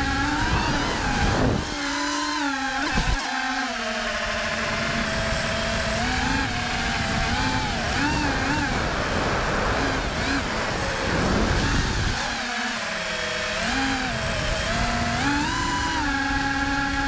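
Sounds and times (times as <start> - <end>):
wind rushing on microphone: 0.0 - 1.9, 4.6 - 12.4
drone motors whining: 0.0 - 17.0.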